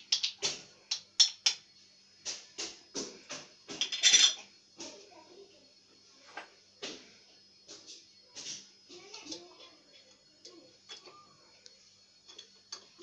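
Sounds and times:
glass jars and lids clinking: 3.7s - 4.4s
jars scraping rattle: 3.7s - 4.5s.

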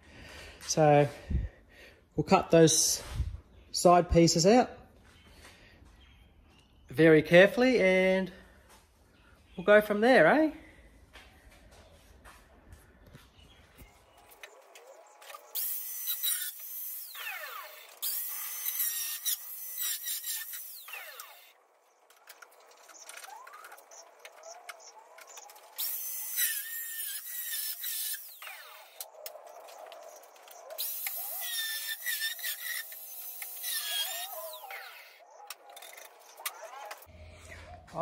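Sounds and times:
angle grinder cutting sheet steel: 14.4s - 21.6s, 25.2s - 29.1s, 30.2s - 37.1s.

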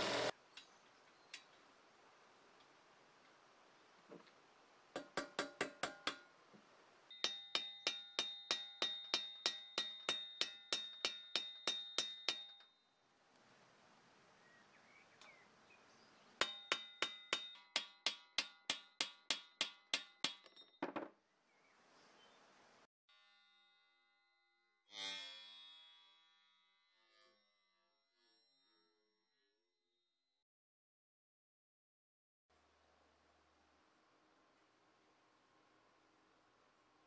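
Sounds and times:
hammer ringing on metal: 5.0s - 6.3s, 7.1s - 12.6s, 16.4s - 20.5s.

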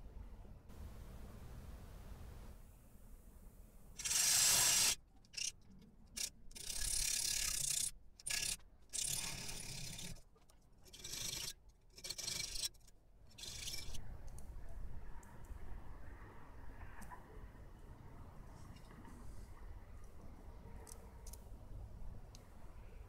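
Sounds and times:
hand file scraping steel: 6.2s - 10.2s, 10.8s - 14.0s.

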